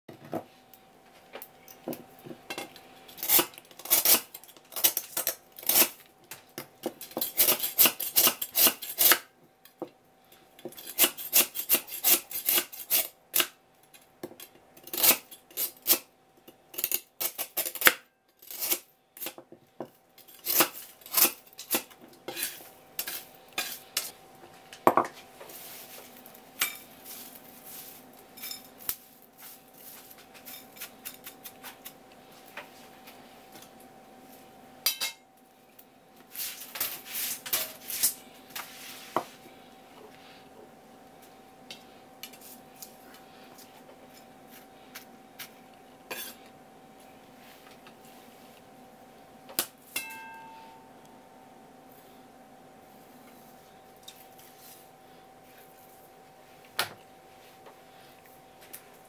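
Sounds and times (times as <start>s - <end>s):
knife scraping ice: 3.1s - 6.0s, 7.2s - 9.2s, 10.7s - 13.5s, 14.8s - 16.1s, 16.7s - 19.4s, 20.2s - 24.1s.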